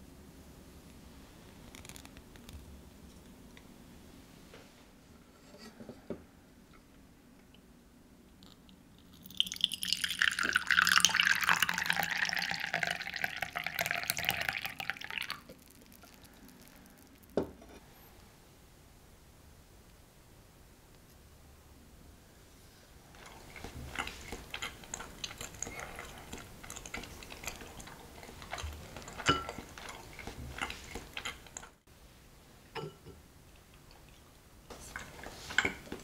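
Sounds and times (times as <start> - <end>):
tea pouring into glass mug: 8.4 - 17.6.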